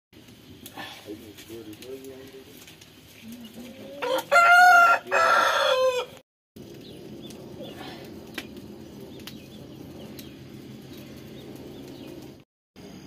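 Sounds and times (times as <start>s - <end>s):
wood fire crackling: 0.2s - 13.0s
rooster crowing: 3.8s - 6.2s.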